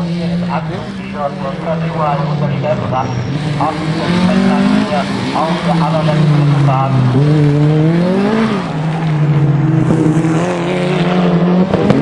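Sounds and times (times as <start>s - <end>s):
car engine revving: 0.0s - 12.0s.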